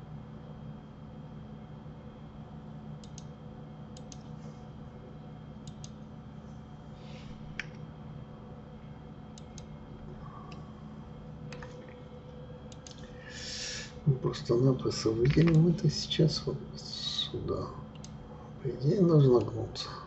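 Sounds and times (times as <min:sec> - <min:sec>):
low room hum: 0:00.0 - 0:20.0
mouse and keyboard clicks: 0:15.2 - 0:15.6.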